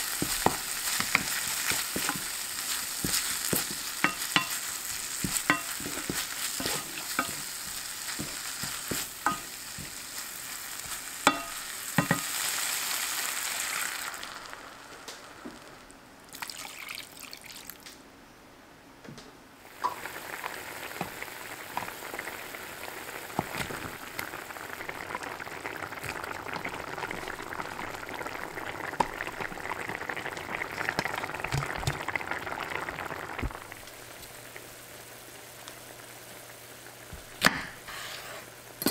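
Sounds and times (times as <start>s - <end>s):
stew bubbling and popping: 0.0s - 12.5s, 16.3s - 18.0s, 19.7s - 34.7s
meat sizzling in a pan: 0.0s - 15.8s, 19.7s - 38.9s
wooden spatula scraping pan: 0.2s - 10.1s, 37.8s - 38.5s.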